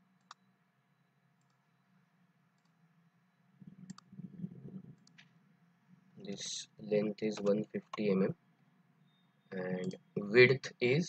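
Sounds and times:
steady low hum: 0.0 - 11.0
computer mouse clicks: 0.2 - 0.5, 2.6 - 2.8, 3.6 - 5.4.

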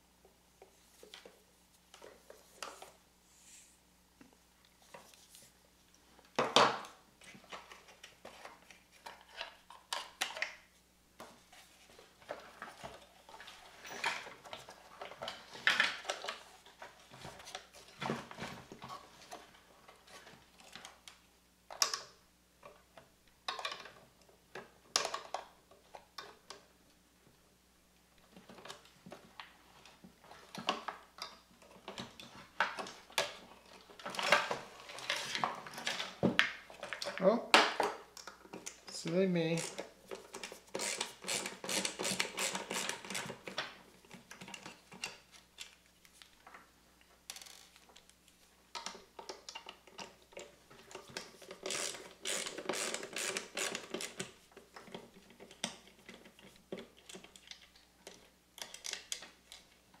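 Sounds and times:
plastic parts clicking and rattling: 12.0 - 26.7, 28.2 - 60.0.

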